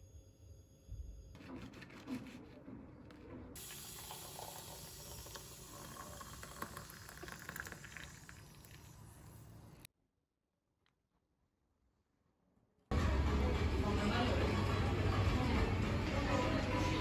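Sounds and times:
water pouring into mug: 3.6s - 9.8s.

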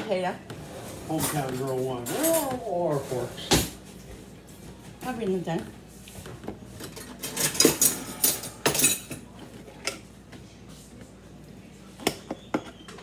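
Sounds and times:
cutlery and dishes clinking: 1.1s - 3.8s, 6.8s - 10.1s.

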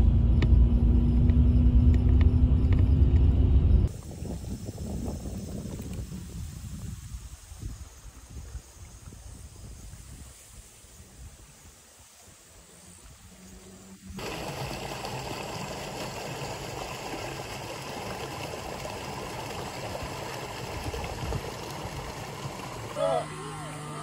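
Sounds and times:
outdoor ambience: 0.0s - 24.0s
flowing water rushing: 11.7s - 24.0s.

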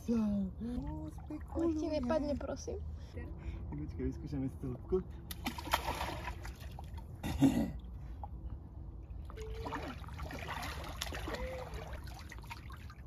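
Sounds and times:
sea water lapping at shore: 5.3s - 7.2s, 9.1s - 13.0s.

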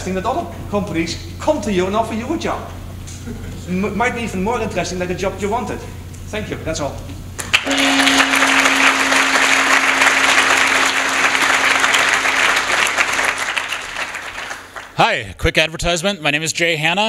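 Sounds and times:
audience applauding: 7.4s - 15.0s
steady tone: 7.6s - 13.4s.

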